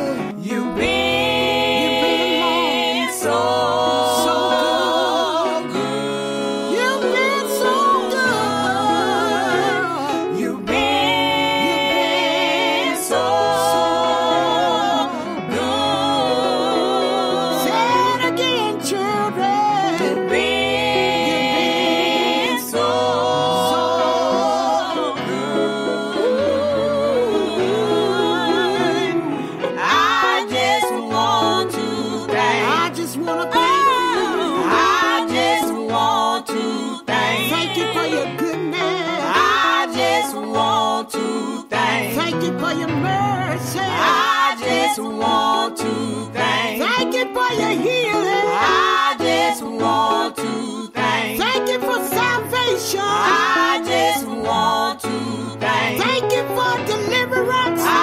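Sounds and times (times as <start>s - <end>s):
gospel singing with bass and chords: 0.0s - 58.0s.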